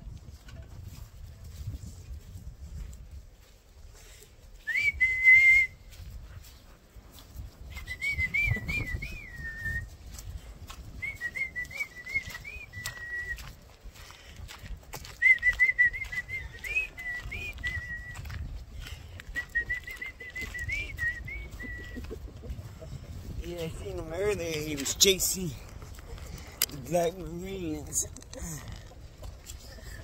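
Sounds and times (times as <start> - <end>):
person whistling a tune: 4.6 - 5.9, 7.7 - 9.9, 11.0 - 13.5, 15.1 - 18.5, 19.2 - 22.0.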